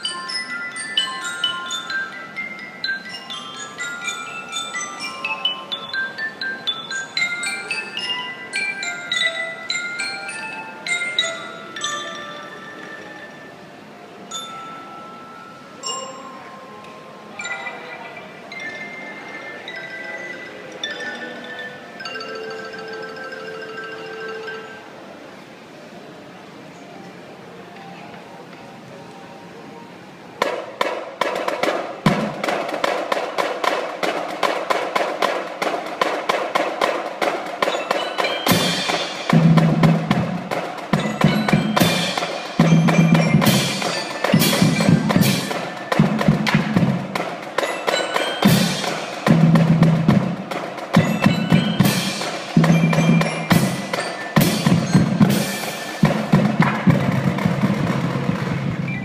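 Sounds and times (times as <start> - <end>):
snare and tenor drums: 30.4 - 59.0.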